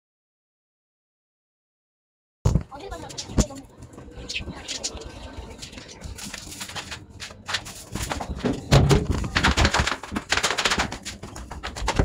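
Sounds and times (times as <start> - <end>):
footsteps: 2.5 - 12.0.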